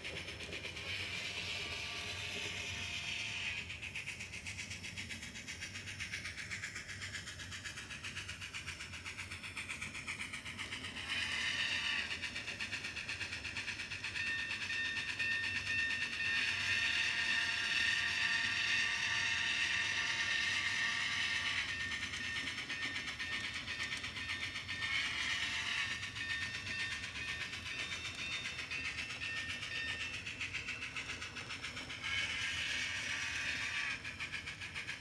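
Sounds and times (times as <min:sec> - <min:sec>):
model steam locomotive chuffing: 0:00.0 - 0:35.0
steady high tone: 0:14.1 - 0:34.0.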